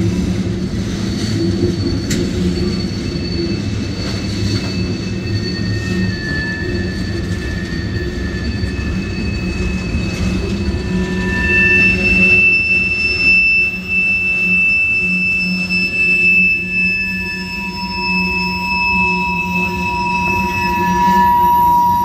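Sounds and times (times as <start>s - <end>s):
high wheel squeals: 0.0s - 22.0s
train wheels rumbling on rail: 0.0s - 22.0s.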